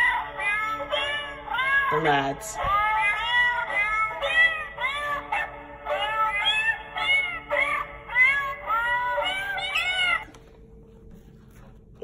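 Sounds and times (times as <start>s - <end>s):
electronic meow tune: 7.2s - 10.3s.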